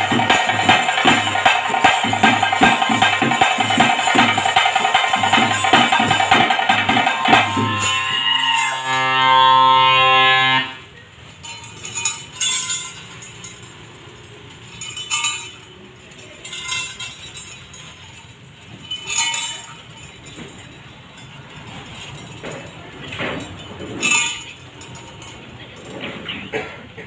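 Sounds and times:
metal ankle bells jingling: 0.0s - 9.2s, 10.9s - 26.5s
held musical tone: 0.0s - 11.0s.

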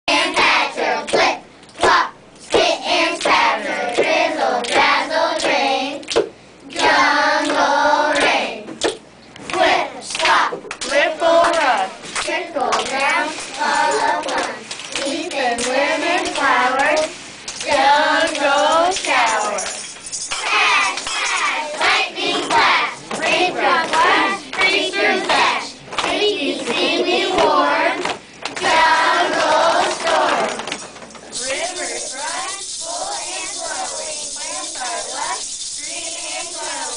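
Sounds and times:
hand claps: 0.4s - 7.6s, 8.2s - 32.8s
children singing in unison: 12.4s - 19.7s, 20.4s - 30.7s, 31.4s - 36.9s.

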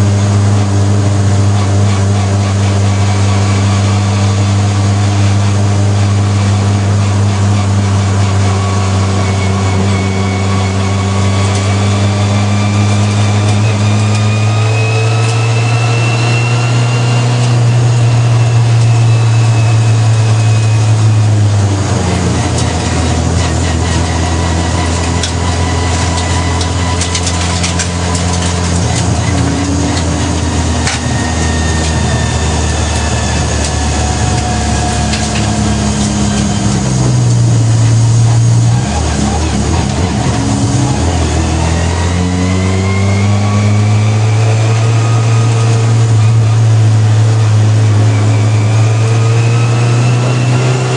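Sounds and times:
faint gear whine: 0.0s - 50.9s
racing car engine: 0.0s - 50.9s.

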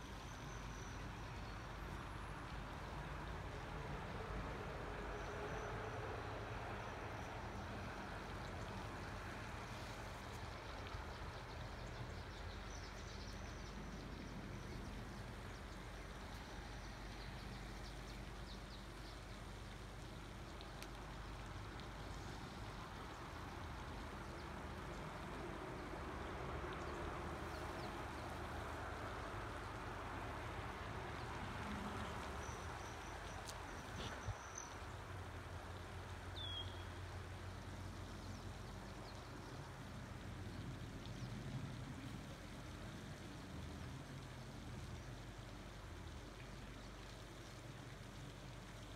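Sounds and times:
bird chirp: 36.4s - 36.9s.

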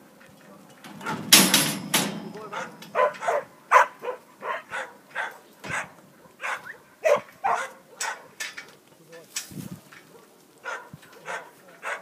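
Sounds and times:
dog barking: 2.5s - 8.4s, 10.1s - 12.0s.

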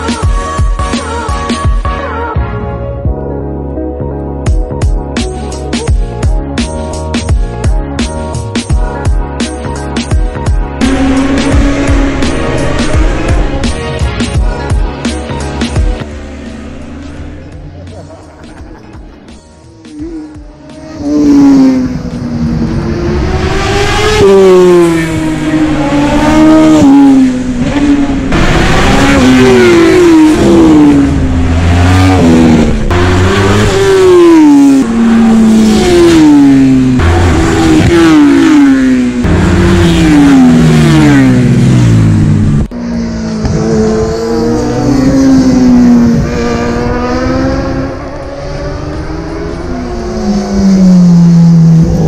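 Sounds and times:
racing motorcycles passing: 10.6s - 52.0s.

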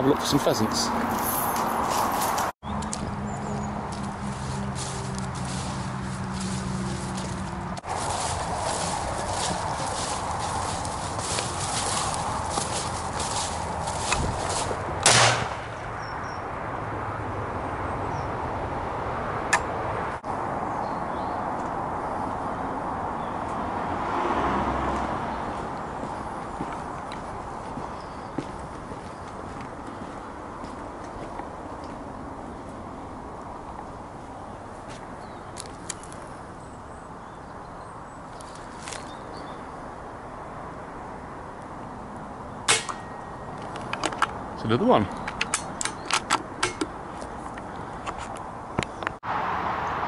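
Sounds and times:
small birds chirping: 0.0s - 14.7s, 25.3s - 40.0s, 41.9s - 49.2s
rustle of long grass: 1.1s - 14.9s, 38.3s - 39.6s
wind noise on microphone: 7.9s - 15.0s
sharp click: 19.5s - 19.7s.

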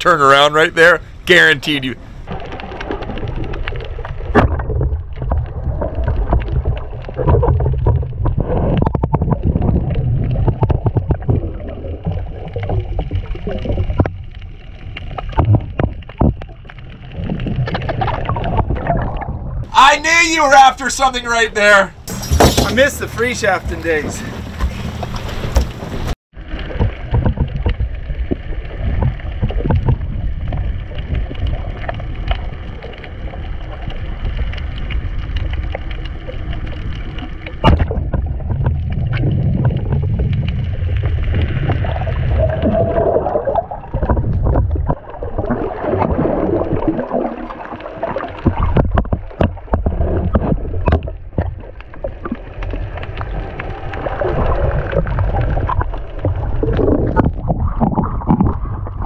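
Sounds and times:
muffled underwater rush: 0.0s - 59.0s
small underwater clicks and gurgles: 2.0s - 19.7s, 24.2s - 59.0s
sharp knock: 22.1s - 22.9s.

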